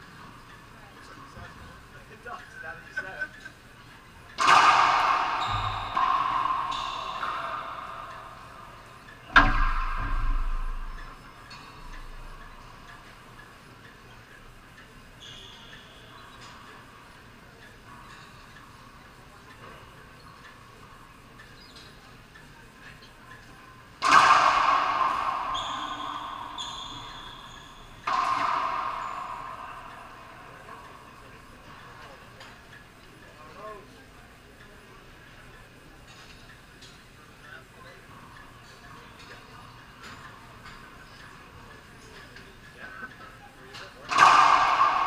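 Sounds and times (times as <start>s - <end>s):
racquetball strikes echoing: 4.4s - 13.5s, 24.0s - 32.7s, 43.7s - 45.0s.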